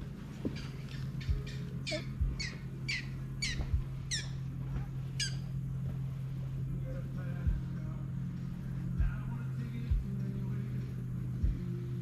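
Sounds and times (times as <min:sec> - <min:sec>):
bird calling: 0:00.0 - 0:06.0
steady low hum: 0:00.0 - 0:12.0.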